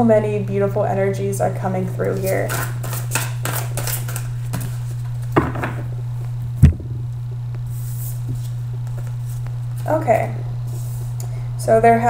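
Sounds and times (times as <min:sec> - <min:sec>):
steady low hum: 0:00.0 - 0:12.0
cards knocking on a table: 0:05.4 - 0:05.9
sharp thump: 0:06.6 - 0:07.1.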